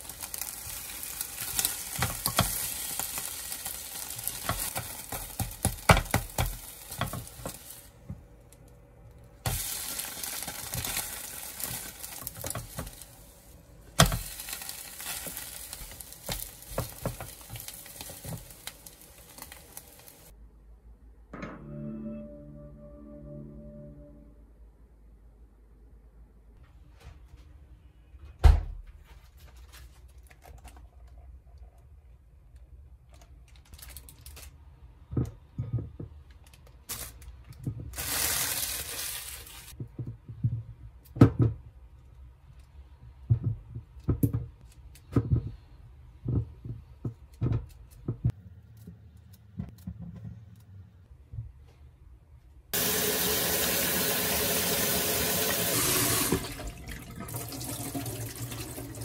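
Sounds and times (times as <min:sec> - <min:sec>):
kitchen tap running: 0:52.8 - 0:59.0.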